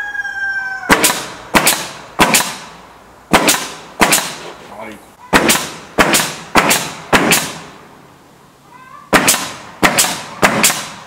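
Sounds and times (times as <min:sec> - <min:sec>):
nail gun firing into wood: 0:00.9 - 0:02.7, 0:03.3 - 0:04.5, 0:05.3 - 0:07.7, 0:09.1 - 0:11.0.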